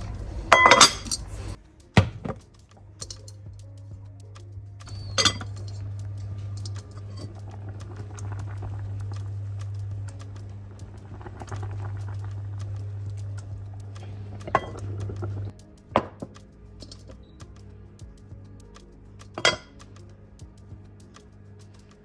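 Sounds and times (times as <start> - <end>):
pot and utensils clinking: 0.5 - 1.3, 3.0 - 3.4, 4.9 - 17.2, 19.3 - 19.8
low electrical hum: 3.0 - 22.0.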